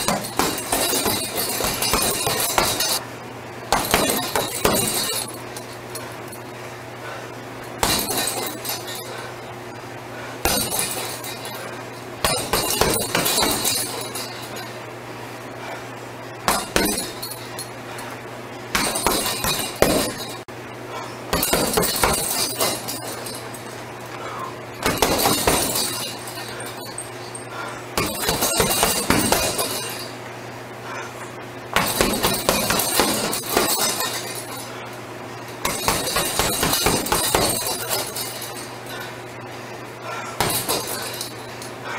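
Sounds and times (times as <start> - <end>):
metal chain rattling: 0.0 - 3.0, 3.8 - 6.4, 7.7 - 9.3, 10.5 - 14.8, 16.5 - 17.7, 21.4 - 23.8, 24.8 - 27.4, 28.0 - 30.2, 31.8 - 34.9, 35.5 - 39.1, 40.4 - 41.8
steady low hum: 0.0 - 41.9
punches on heavy bag: 31.8 - 34.2.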